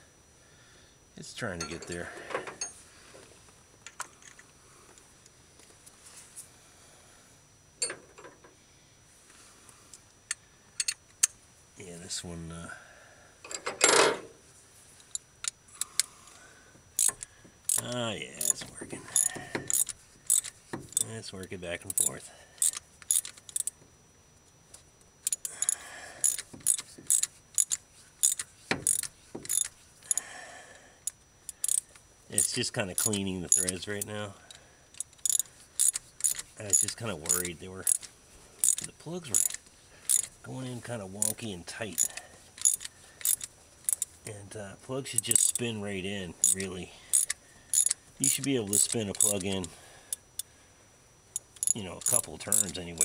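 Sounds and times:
ratchet clicking: 17.0 - 18.6, 19.2 - 21.1, 21.9 - 23.8, 25.2 - 30.2, 31.0 - 40.4, 41.2 - 44.2, 45.2 - 45.6, 46.4 - 50.5, 51.3 - 53.0
metal tool scraping: 18.4 - 21.0, 26.2 - 30.2, 35.0 - 40.3, 41.2 - 44.1, 46.4 - 49.7, 51.4 - 52.8.

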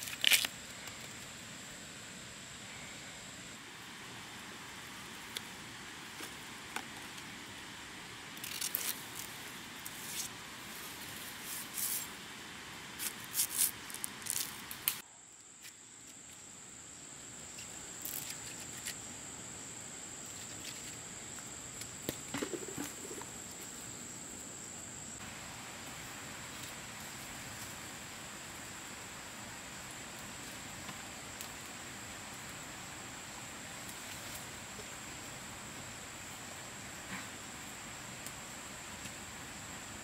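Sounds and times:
bamboo crackling and rustling: 0.0 - 1.6, 4.8 - 16.5, 17.4 - 19.1, 20.2 - 24.1, 29.8 - 35.2.

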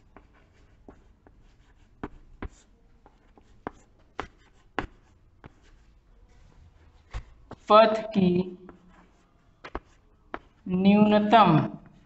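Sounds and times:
chalk tapping on board: 0.1 - 5.8, 8.7 - 10.6
chalk scratching on chalkboard: 0.1 - 8.0.

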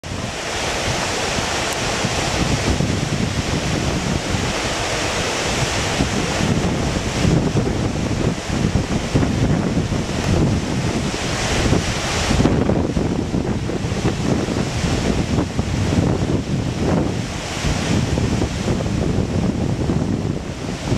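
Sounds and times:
whitewater river rushing: 0.0 - 20.9
wind buffeting microphone: 0.0 - 20.9.

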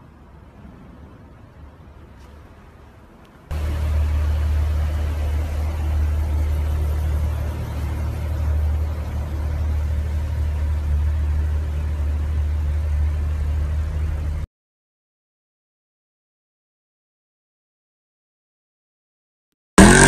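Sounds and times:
car engines idling: 0.0 - 14.5.

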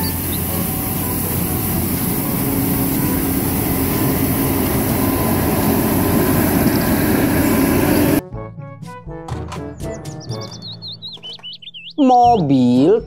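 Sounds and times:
brushes hissing on road: 0.0 - 8.2
street sweeper engine humming: 0.0 - 8.2.

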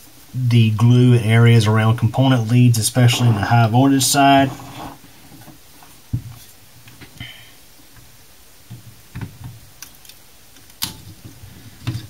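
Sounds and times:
hand tool scraping hardened glue: 2.9 - 5.5
squeaky scrape: 4.3 - 5.0.

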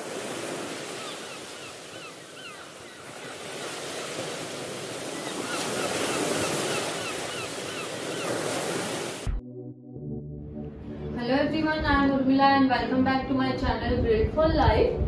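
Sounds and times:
surf rushing: 0.0 - 2.0.

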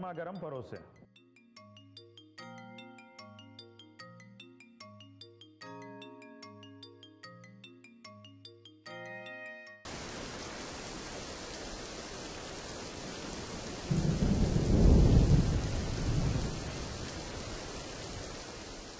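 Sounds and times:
mallet instrument jingle: 0.0 - 9.9
steady rain: 9.9 - 18.9
low roll of thunder: 13.8 - 18.5.

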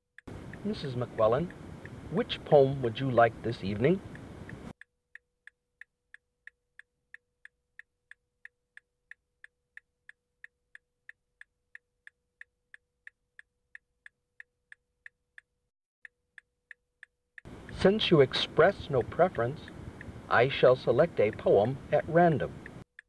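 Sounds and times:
faint steady tone: 0.2 - 4.8, 17.4 - 22.8
clock ticking: 0.2 - 23.0.

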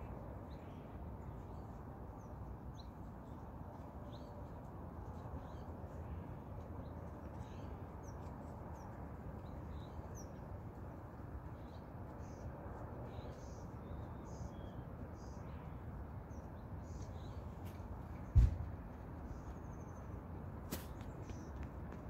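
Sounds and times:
sharp knock: 18.3 - 18.7.

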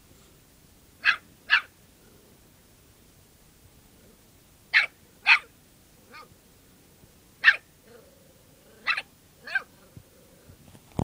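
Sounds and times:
small dog yapping: 1.0 - 1.7, 4.7 - 5.5, 7.4 - 7.7, 8.8 - 9.8.

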